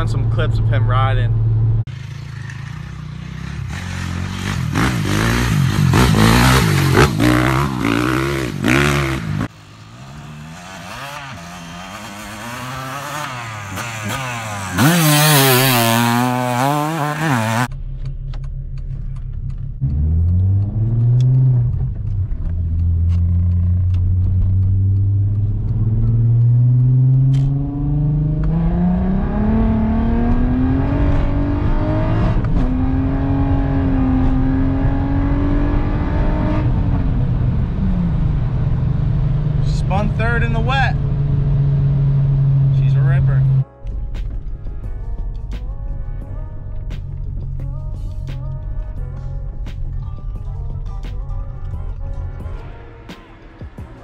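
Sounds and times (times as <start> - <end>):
car engine accelerating: 0.0 - 54.0
dirt bike engine revving: 1.3 - 17.7, 24.7 - 37.2.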